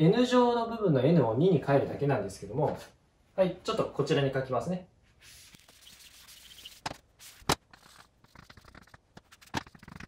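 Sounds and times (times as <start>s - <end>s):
eraser rubbing on chalkboard: 5.2s - 10.0s.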